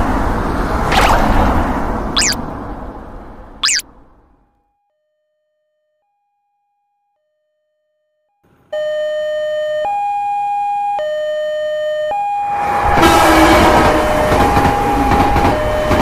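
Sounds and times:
level crossing alarm: 0:02.2 - 0:02.4, 0:03.6 - 0:03.8.

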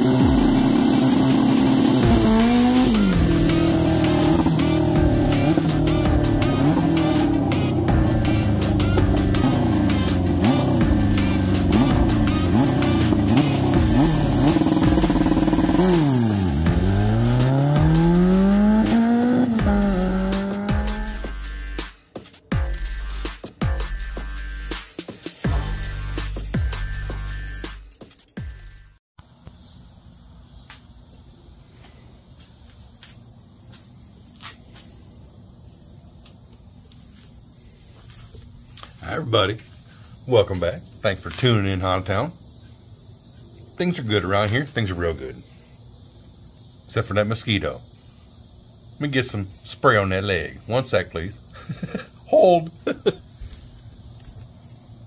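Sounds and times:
motorcycle engine revving: 0:00.0 - 0:21.8
high-pitched insect chorus: 0:09.6 - 0:21.7, 0:29.2 - 0:55.0.

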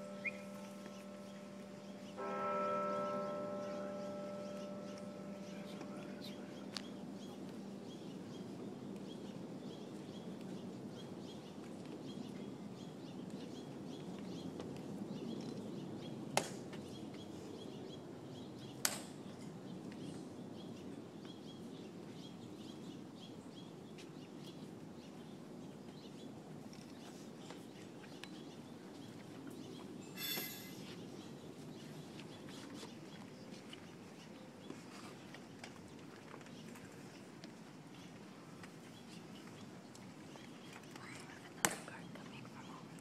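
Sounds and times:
faint high chirping: 0:00.0 - 0:02.1.

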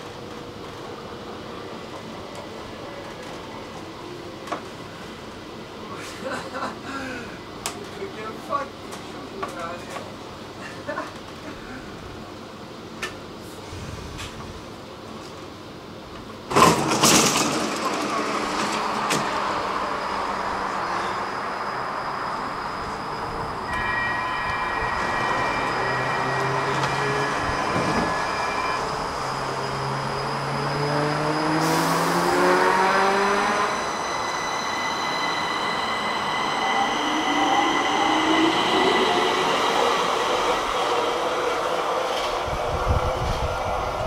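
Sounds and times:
wheels rumbling on rail: 0:12.9 - 0:44.0
train traction motor whine: 0:16.5 - 0:44.0.

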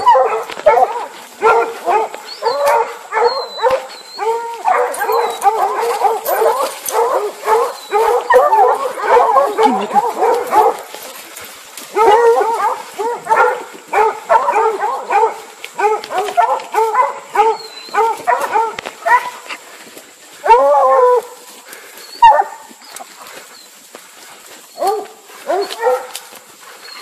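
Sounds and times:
hound bawling: 0:00.0 - 0:11.0
hounds barking and baying: 0:00.0 - 0:27.0.

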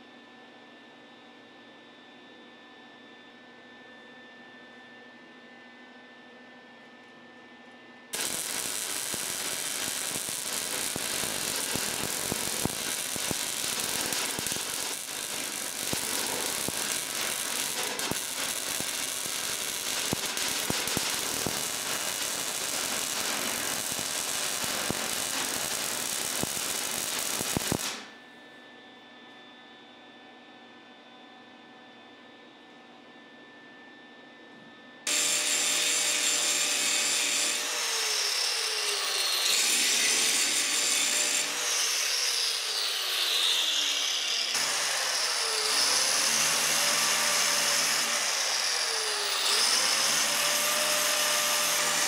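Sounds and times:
welding arc crackling: 0:08.2 - 0:28.1, 0:35.1 - 0:52.0.

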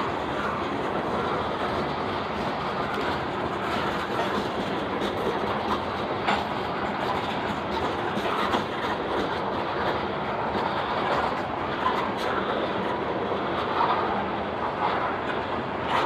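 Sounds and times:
train wheels rumbling on rails: 0:00.0 - 0:16.0
wheels clicking over rail joints: 0:00.0 - 0:16.0.

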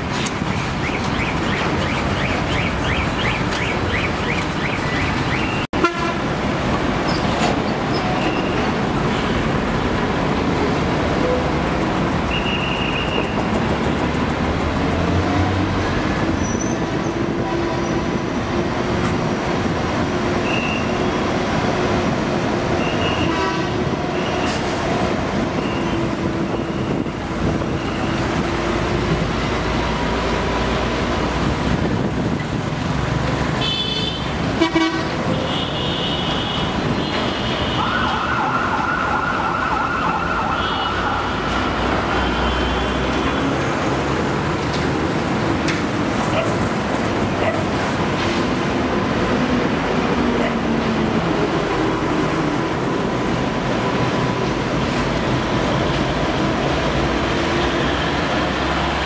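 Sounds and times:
heavy vehicles passing: 0:00.0 - 0:59.0
truck horn toots: 0:05.8 - 0:06.2, 0:22.8 - 0:23.9, 0:33.6 - 0:37.6.

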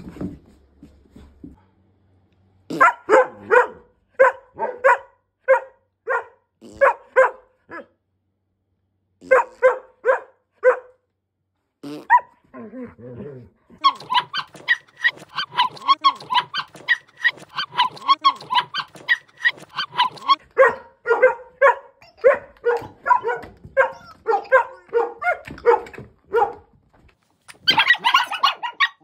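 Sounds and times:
dogs barking high-pitched: 0:02.7 - 0:08.0, 0:09.2 - 0:11.0, 0:12.1 - 0:12.4, 0:13.8 - 0:26.7, 0:27.5 - 0:29.0
dog growling: 0:12.5 - 0:20.4.

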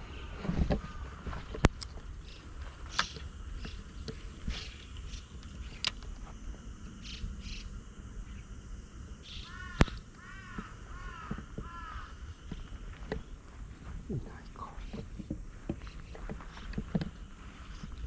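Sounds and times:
sharp clicks: 0:02.8 - 0:06.2, 0:09.3 - 0:11.7
crow cawing: 0:09.2 - 0:12.7.

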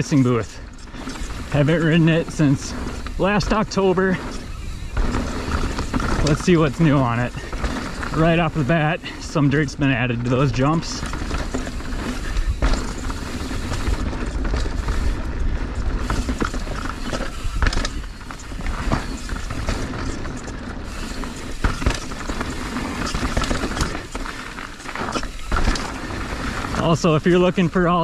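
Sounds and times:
bike tyres rolling on dirt: 0:00.0 - 0:28.0
knocks and rattles from bumps: 0:09.8 - 0:26.8.

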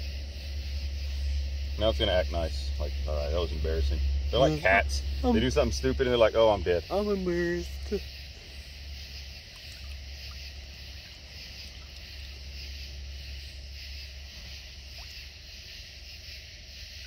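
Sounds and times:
low rumble: 0:00.0 - 0:17.0
night insects chorus: 0:00.0 - 0:17.0.

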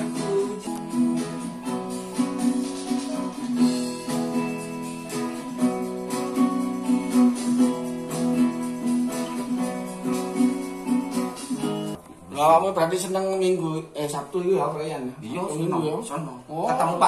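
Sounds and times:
classical guitar strummed chords: 0:00.0 - 0:12.0.

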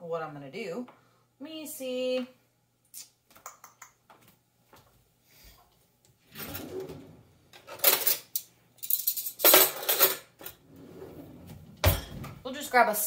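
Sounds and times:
metal utensils clattering: 0:07.6 - 0:10.6.

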